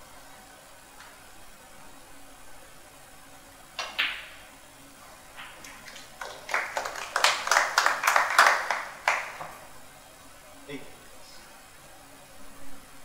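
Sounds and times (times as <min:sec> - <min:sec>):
snooker balls clicking: 0:03.8 - 0:04.4, 0:05.4 - 0:09.6
audience applause: 0:05.6 - 0:09.5.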